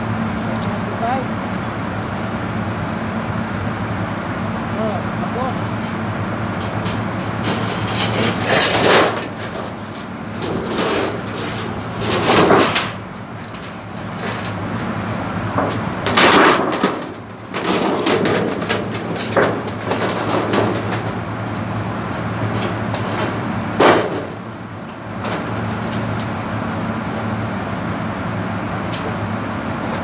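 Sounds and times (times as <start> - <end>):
low machinery hum: 0.0 - 30.0
metal sheet rattling and buckling: 6.6 - 26.2.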